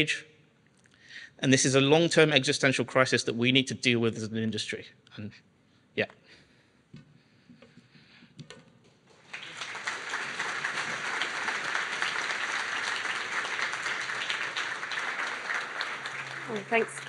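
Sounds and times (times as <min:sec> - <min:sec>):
audience applauding: 0:09.1 - 0:17.0.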